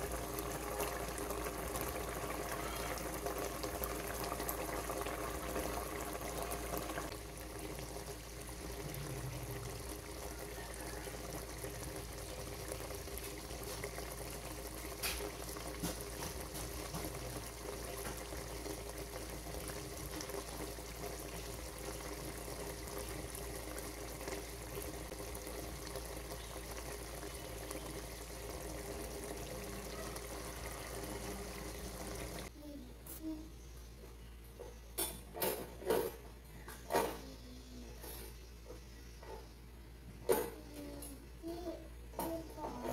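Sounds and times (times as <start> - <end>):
curry bubbling in a pot: 0.0 - 32.5.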